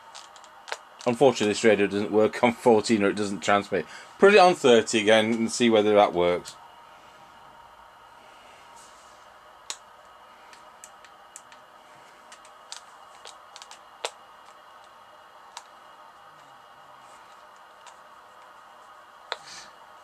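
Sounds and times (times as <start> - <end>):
faint steady hiss: 0.0 - 20.0.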